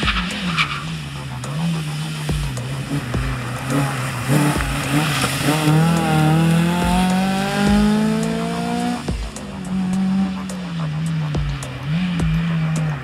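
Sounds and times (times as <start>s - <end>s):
car engine accelerating: 0.0s - 13.0s
music with steady beat: 0.0s - 13.0s.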